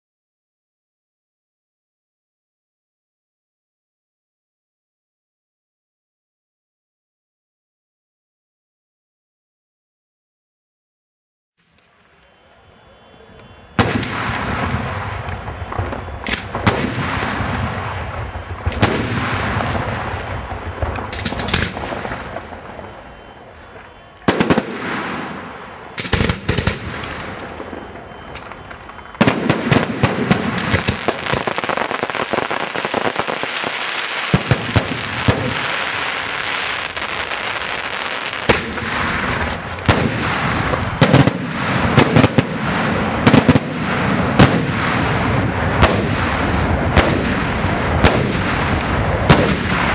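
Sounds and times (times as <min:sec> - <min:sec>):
fireworks bangs and crackling: 0:11.9 - 0:49.9.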